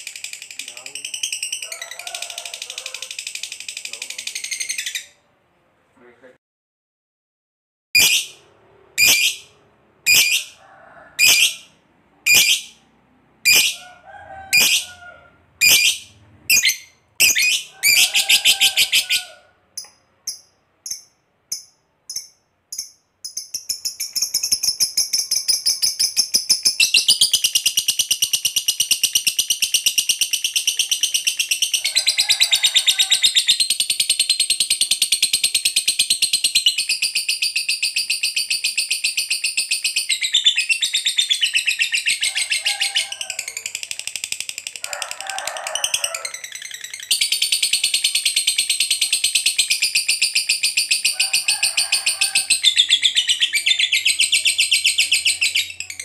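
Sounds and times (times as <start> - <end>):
bird chirping and chattering: 0.0 - 5.2, 8.0 - 8.4, 9.0 - 9.5, 10.1 - 10.6, 11.2 - 11.7, 12.3 - 12.8, 13.4 - 13.8, 14.5 - 14.9, 15.6 - 19.2, 19.8 - 32.4, 33.1 - 45.1, 45.7 - 51.2, 52.0 - 56.0.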